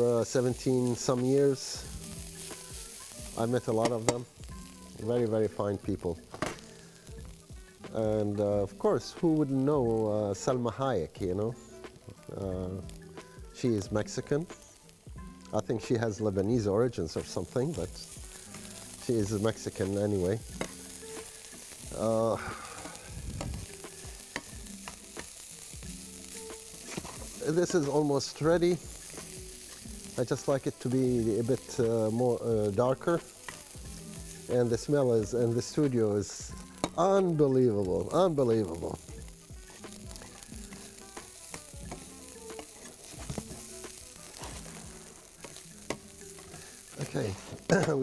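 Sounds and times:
meat sizzling in a pan: 0.0s - 48.0s
metal utensil scraping a pan: 26.5s - 35.8s, 36.6s - 37.1s, 39.6s - 48.0s
utensil tapping and scraping pan: 26.8s - 27.8s, 36.6s - 37.0s, 40.6s - 43.7s, 44.3s - 46.7s.

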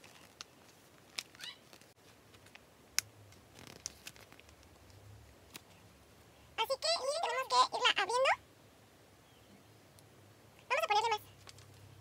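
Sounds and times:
soft rustles: 0.0s - 2.7s, 3.3s - 6.4s.

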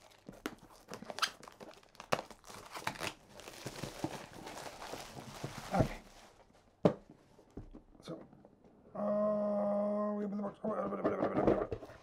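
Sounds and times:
plastic wrap crinkling: 0.0s - 6.6s.

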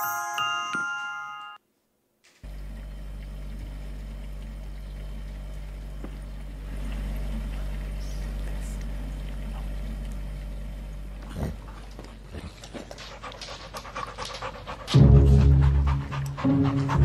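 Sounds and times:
steady low hum: 2.4s - 17.0s.

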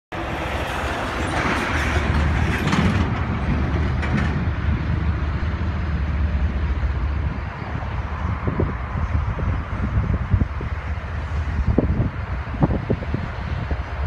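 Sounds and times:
low rumble of vehicles: 0.1s - 14.0s.

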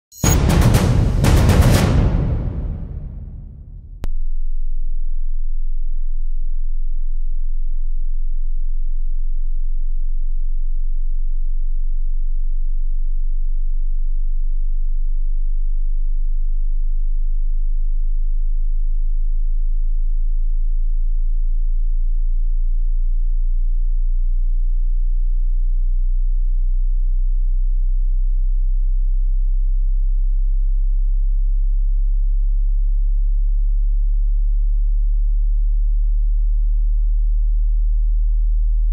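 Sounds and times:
deep sine tone sweep: 4.0s - 38.9s.

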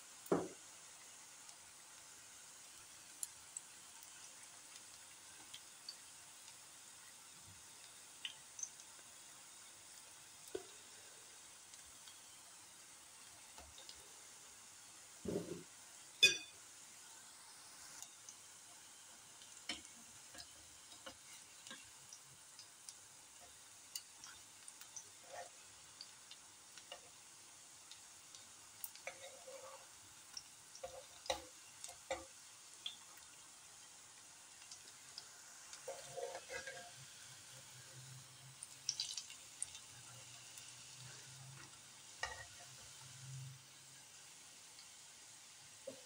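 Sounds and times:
fritters sizzling in oil: 0.0s - 46.0s
metal spatula clicks and taps: 30.3s - 33.0s.

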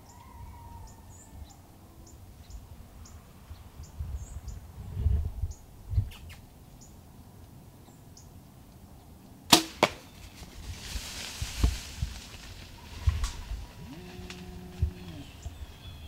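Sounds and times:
arrow striking target: 9.5s - 10.2s
rustling: 9.7s - 15.8s.

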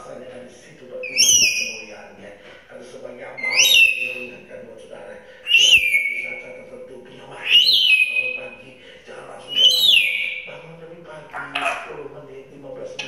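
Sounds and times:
parrot whistling: 1.0s - 1.9s, 3.4s - 4.3s, 5.4s - 6.6s, 7.4s - 8.6s, 9.4s - 10.5s.

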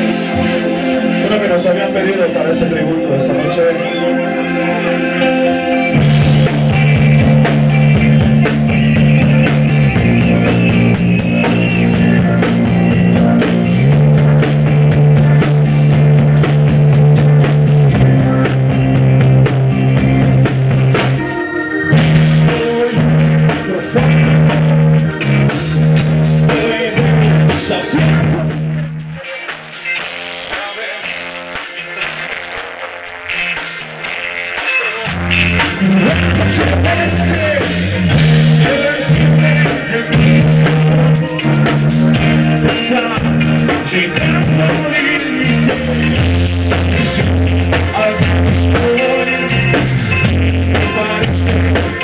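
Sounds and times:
low held bass notes: 0.0s - 29.2s, 35.1s - 52.0s
rock band playing: 0.0s - 52.0s.

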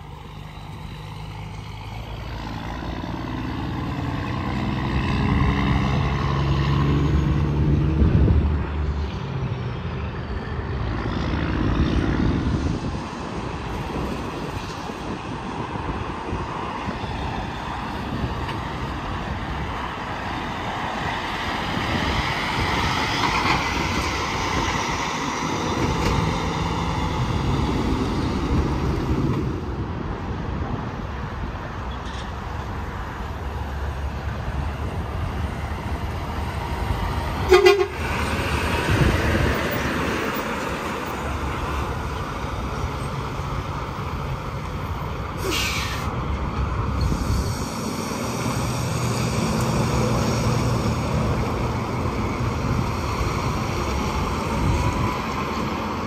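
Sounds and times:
heavy trucks passing: 0.0s - 56.0s
air horn blast: 37.4s - 38.1s
brief hiss: 45.4s - 46.1s.

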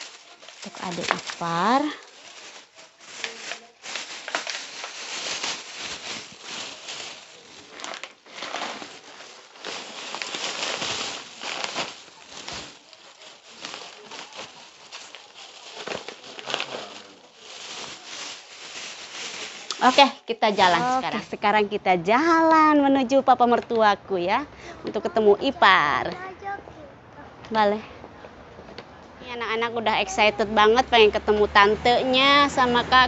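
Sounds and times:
crinkly wrapping rustling: 0.0s - 22.4s.

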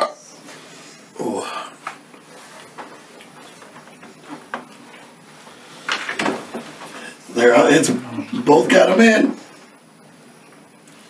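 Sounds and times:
low room noise: 0.0s - 11.0s.

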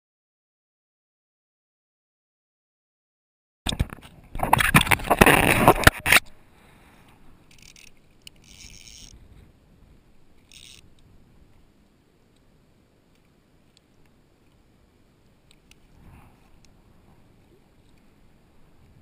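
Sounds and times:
camera handling scrapes and knocks: 3.7s - 6.3s.

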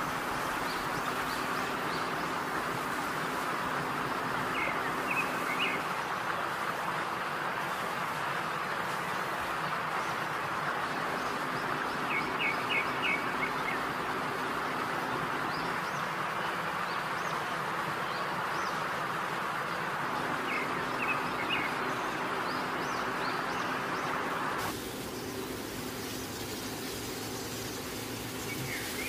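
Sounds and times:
food sizzling in oil: 24.6s - 29.0s.

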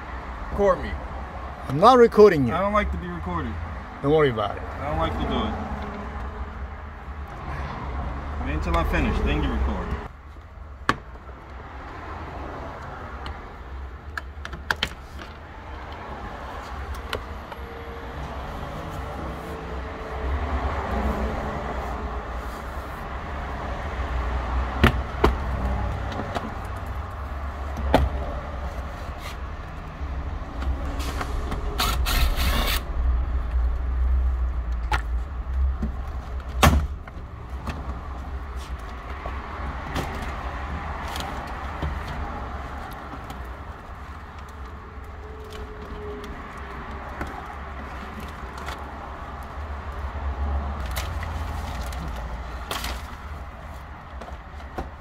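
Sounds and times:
steady low rumble: 29.6s - 38.5s
short rasp: 31.8s - 32.9s.

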